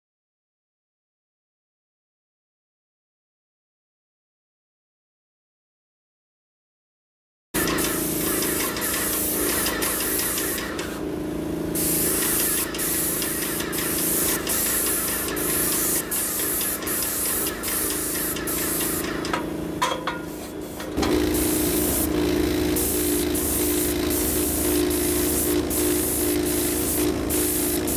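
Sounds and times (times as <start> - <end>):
paint spray gun hissing: 7.6 - 27.9
steady machine hum: 7.6 - 27.9.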